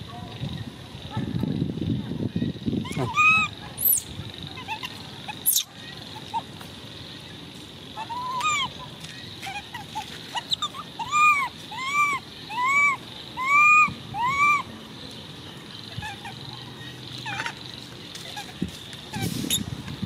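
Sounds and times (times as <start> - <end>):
baby monkey coo calls: 2.8 - 6.6, 7.9 - 14.7, 15.9 - 19.7.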